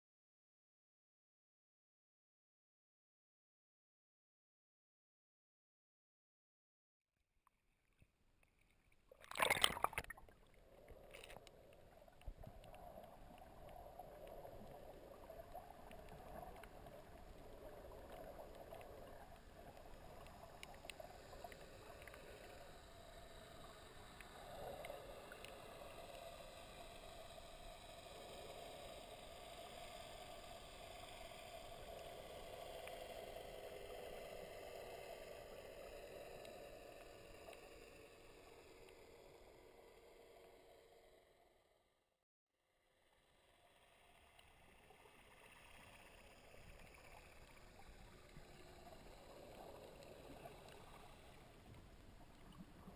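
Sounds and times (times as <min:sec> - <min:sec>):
faint ticks: 0:07.4 - 0:39.8, 0:43.8 - 0:52.9
sharp water splash: 0:09.2 - 0:10.2
muffled underwater sea rumble: 0:43.2 - 0:52.9.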